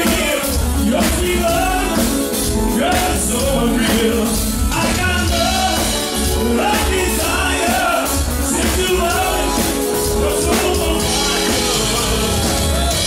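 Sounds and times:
bass guitar: 0:00.0 - 0:13.0
drum kit: 0:00.0 - 0:13.0
keyboard: 0:00.0 - 0:13.0
person singing: 0:00.0 - 0:13.0.

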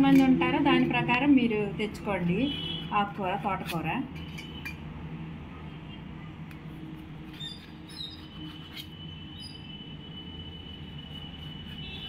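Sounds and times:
knife squeaking on steel plate: 0:07.3 - 0:09.8.

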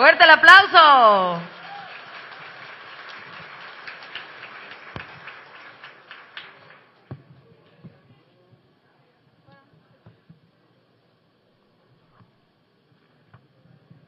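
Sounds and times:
audience applauding: 0:00.6 - 0:07.0
scattered single claps: 0:01.8 - 0:07.1.

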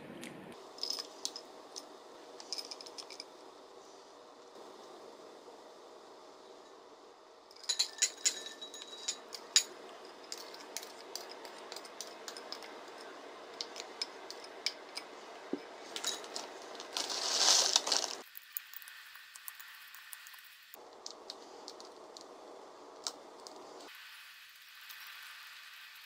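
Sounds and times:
glass clinks: 0:07.6 - 0:09.7
shredded cheese rustling: 0:16.3 - 0:18.3.

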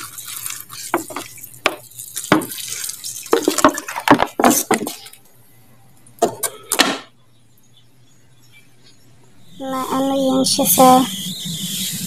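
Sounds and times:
water splashing onto leaves: 0:00.0 - 0:05.2.

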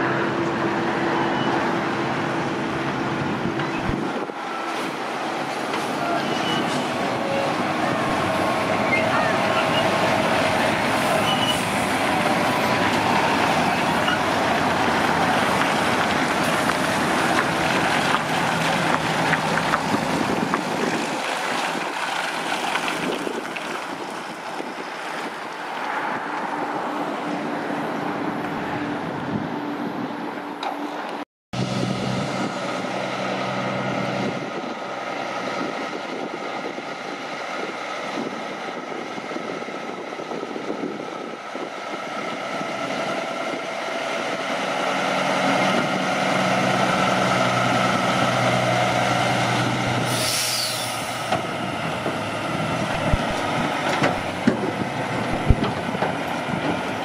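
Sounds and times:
heavy truck driving past: 0:00.0 - 0:24.4, 0:30.8 - 0:40.3, 0:41.3 - 0:57.0
truck engine running steadily: 0:31.6 - 0:57.0.

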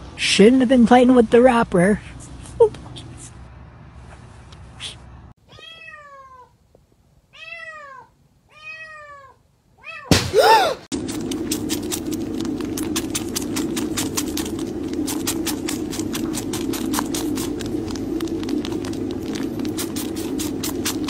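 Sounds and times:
cat meowing: 0:05.5 - 0:06.6, 0:07.3 - 0:10.1
short loud cry: 0:10.1 - 0:10.9.

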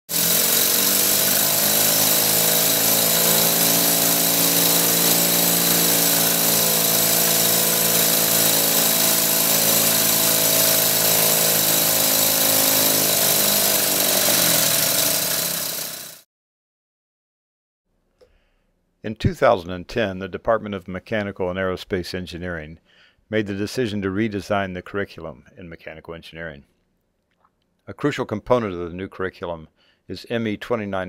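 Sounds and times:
compressed-air motor hissing and whirring: 0:00.1 - 0:16.2.

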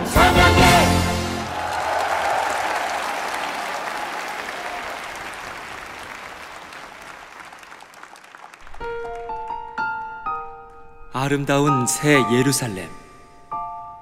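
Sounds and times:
audience applauding: 0:01.2 - 0:09.7
piano notes: 0:08.6 - 0:14.0.

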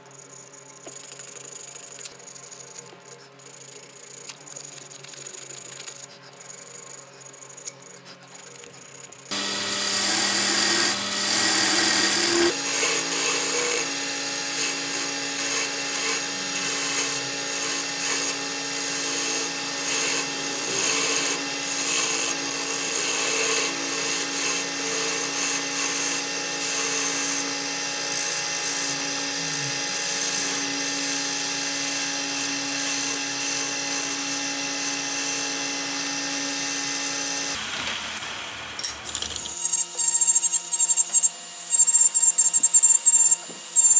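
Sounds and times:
turning tool scraping wood: 0:07.7 - 0:36.2
wood lathe motor whine: 0:09.3 - 0:43.9.

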